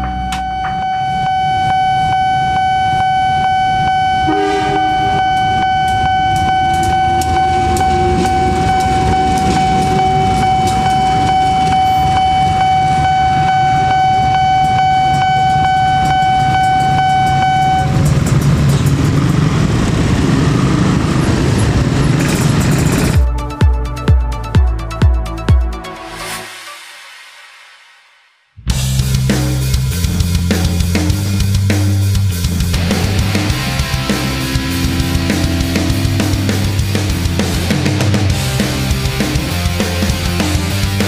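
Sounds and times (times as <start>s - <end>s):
level crossing bell ringing: 0.0s - 18.0s
warning signal clicks: 0.0s - 19.5s
motorcycle traffic rumble: 0.0s - 23.2s, 28.7s - 41.0s
train horn: 0.8s - 18.0s.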